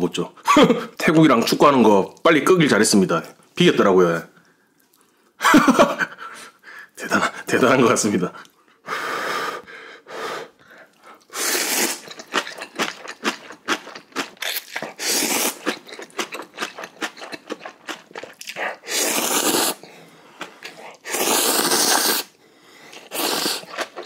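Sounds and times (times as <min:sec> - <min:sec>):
person slurping noodles: 0:11.2 - 0:24.0
wet chewing and smacking: 0:11.9 - 0:18.9, 0:22.9 - 0:24.0.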